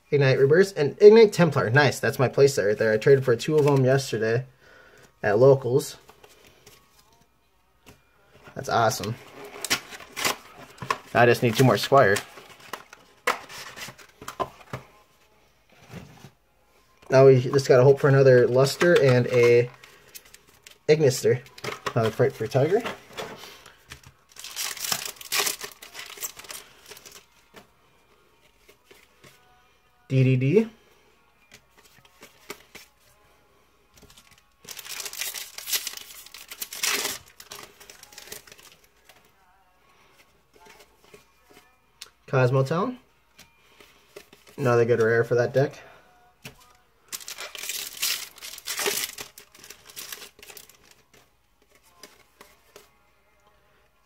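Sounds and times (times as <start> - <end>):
cards rustling: 8.7 - 15.0, 17.1 - 27.6, 31.5 - 33.0, 34.0 - 39.3, 46.4 - 52.9
foil wrapper crinkling: 23.8 - 27.2, 34.0 - 39.2, 47.0 - 52.4.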